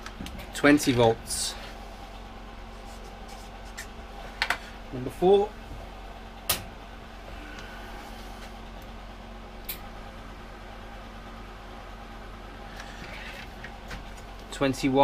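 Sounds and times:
welder mains hum: 0.0s - 15.0s.

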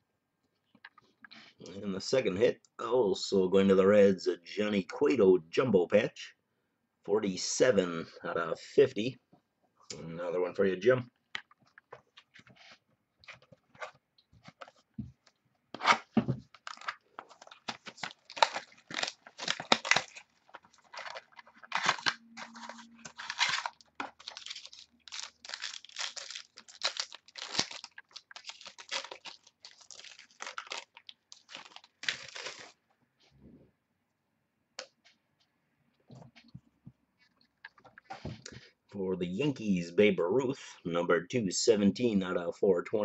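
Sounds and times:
wrapper tearing and crinkling: 15.8s - 32.8s.

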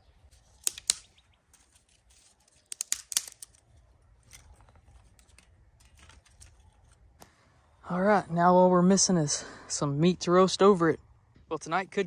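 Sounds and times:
kindling snapping and crackling: 0.2s - 7.4s.

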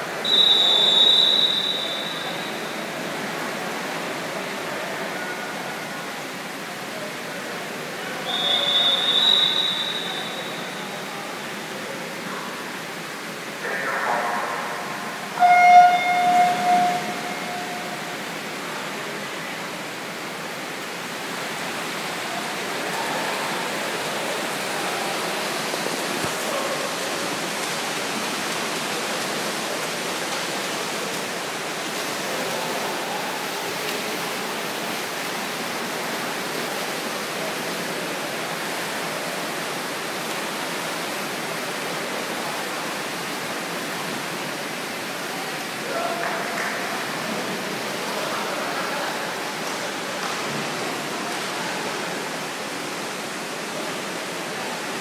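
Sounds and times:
echoing splashing water: 0.0s - 6.4s, 7.8s - 55.0s.

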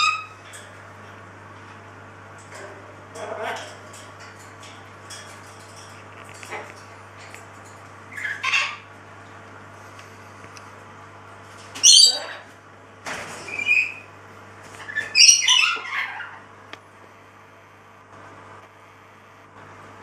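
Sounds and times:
steady low hum: 0.0s - 20.0s
animal harsh cries: 8.1s - 8.9s, 14.9s - 16.5s.

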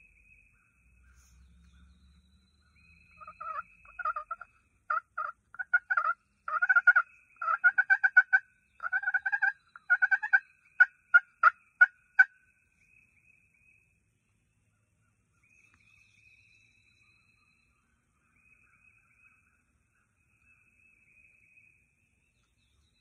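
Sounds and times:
wild turkey calling: 0.0s - 13.6s.

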